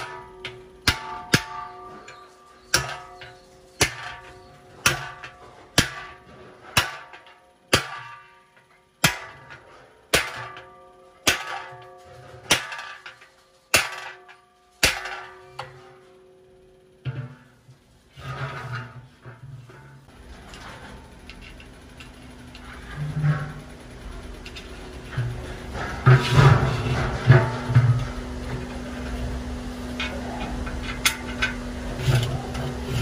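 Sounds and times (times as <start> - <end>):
hammer striking steel punch: 0.0 - 15.9.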